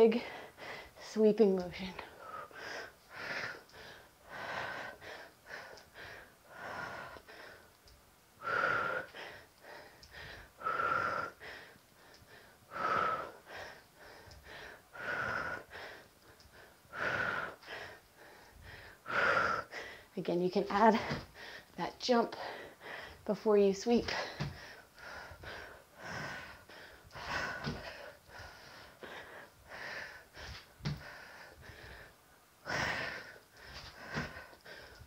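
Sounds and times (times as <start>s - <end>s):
woman breathing heavily: 0.0s - 35.0s.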